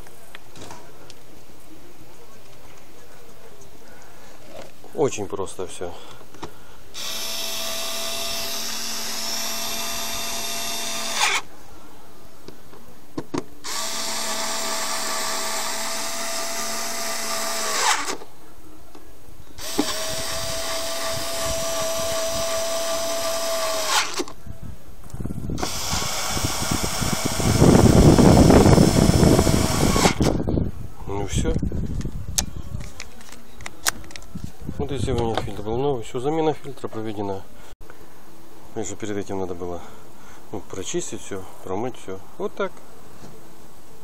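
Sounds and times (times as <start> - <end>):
cordless screwdriver whirring: 7.0 - 11.4, 13.7 - 18.2, 19.6 - 24.4, 25.6 - 30.4.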